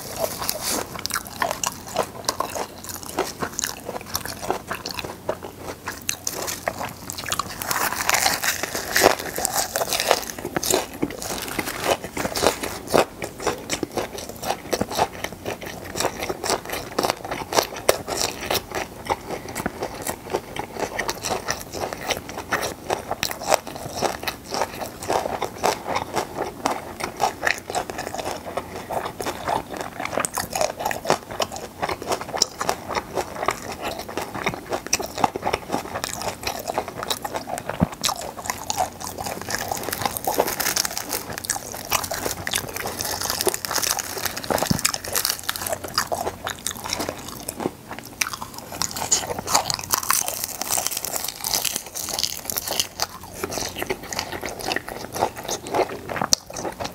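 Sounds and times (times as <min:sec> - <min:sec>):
chewing and biting dried fish: 0:00.0 - 0:56.9.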